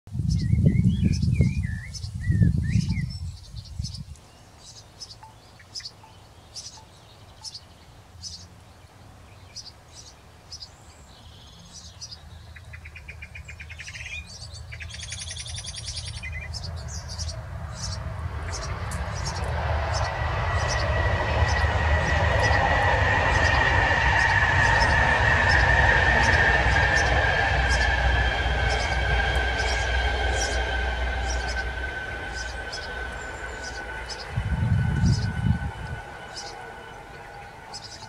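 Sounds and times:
birds chirping: 0:00.2 - 0:38.0
bird trilling: 0:11.8 - 0:38.0
low rumble: 0:16.6 - 0:38.0.

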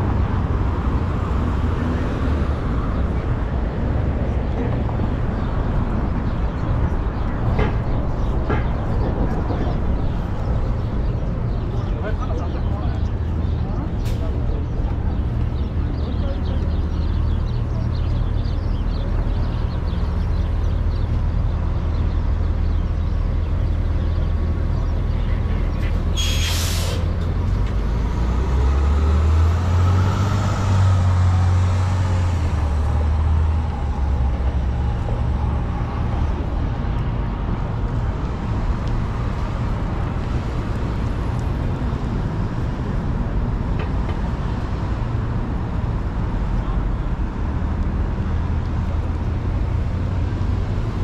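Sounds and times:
heavy vehicle engine: 0:00.0 - 0:51.0
traffic engines rumbling: 0:00.0 - 0:51.0
air brakes hissing: 0:26.2 - 0:27.1.

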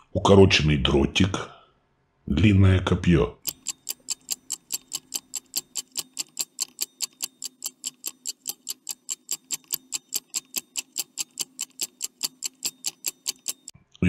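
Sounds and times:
stopwatch ticking: 0:03.4 - 0:13.7.

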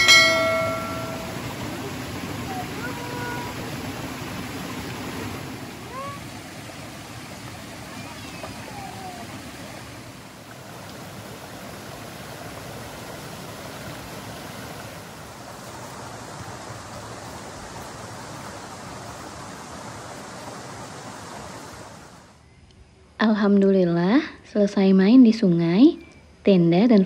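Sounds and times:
river water flowing: 0:00.0 - 0:22.4.

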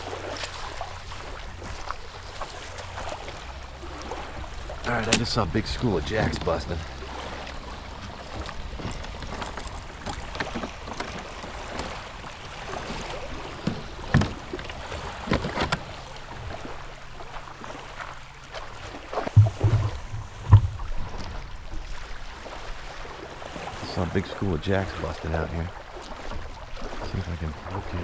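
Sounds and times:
water lapping against kayak: 0:00.0 - 0:28.0
fishing gear knocking on hull: 0:12.7 - 0:16.0, 0:19.3 - 0:21.5
heavy low thumps: 0:19.3 - 0:21.5.

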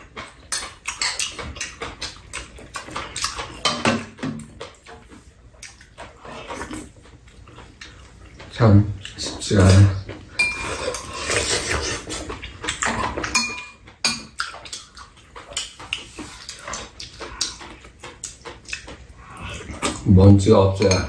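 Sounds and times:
chewing: 0:00.0 - 0:20.1
utensils clicking against bowls: 0:00.0 - 0:20.1, 0:20.7 - 0:21.0.

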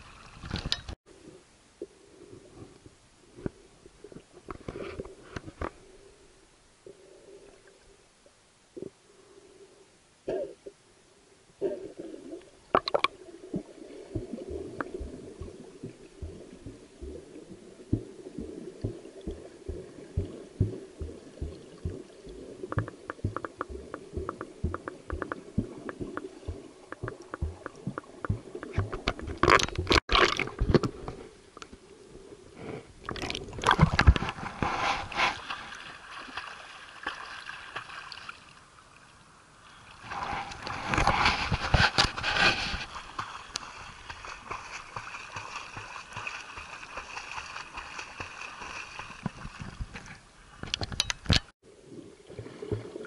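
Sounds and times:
muffled underwater swimming: 0:11.6 - 0:35.7, 0:51.7 - 0:53.0
water splashing: 0:11.7 - 0:31.0, 0:33.0 - 0:38.7, 0:39.9 - 0:53.0
soft low knocks: 0:17.9 - 0:29.4.

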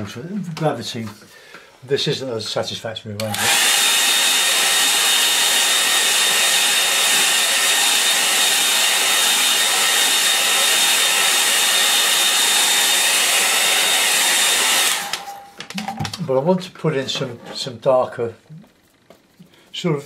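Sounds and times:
hair dryer blowing: 0:03.2 - 0:15.6.

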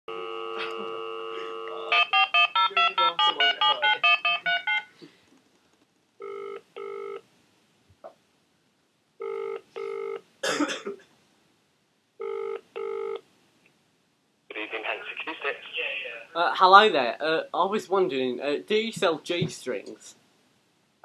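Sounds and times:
double-ring ringback tone: 0:01.5 - 0:04.9
keypad dialing beeps: 0:02.0 - 0:04.9.

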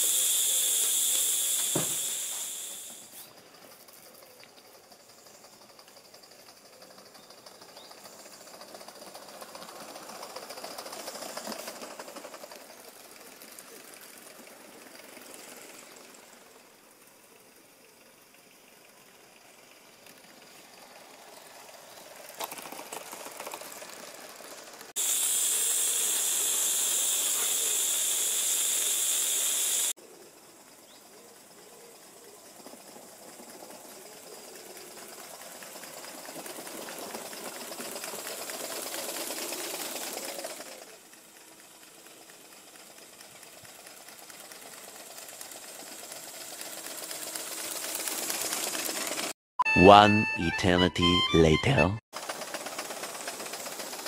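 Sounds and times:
loud steam hiss: 0:00.0 - 0:03.2, 0:25.0 - 0:30.0
steam locomotive running: 0:00.0 - 0:30.0, 0:31.4 - 0:54.0.

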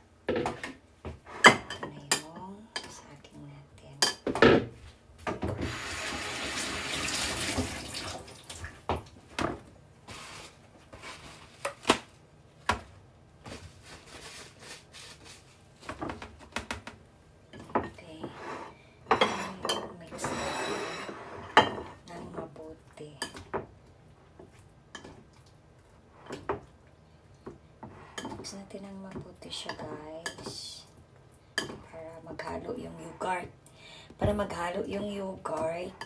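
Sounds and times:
dishes and utensils clinking: 0:17.6 - 0:22.0.

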